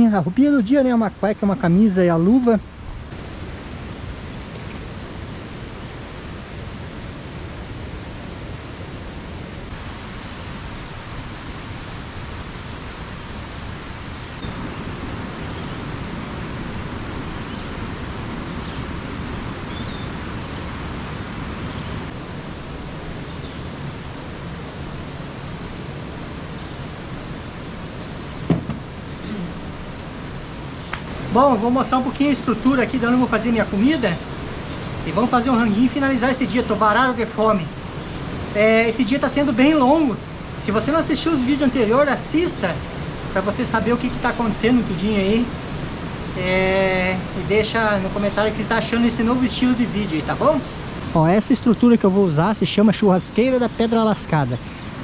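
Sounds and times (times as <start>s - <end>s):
river rushing: 0.0s - 55.0s
faint bird chirps: 14.2s - 17.8s, 19.6s - 20.7s, 29.0s - 29.6s.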